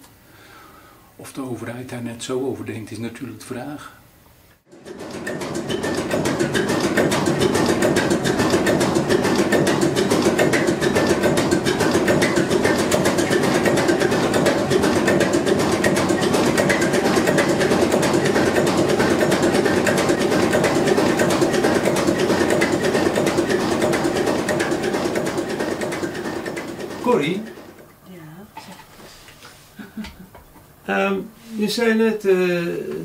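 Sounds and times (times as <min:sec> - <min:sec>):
diesel engine droning and clattering: 0:05.2 - 0:26.9.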